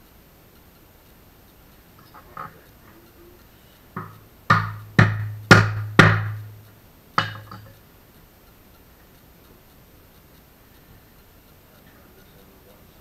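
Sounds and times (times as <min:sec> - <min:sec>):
hard knocks on wood: 0:04.0 - 0:06.6.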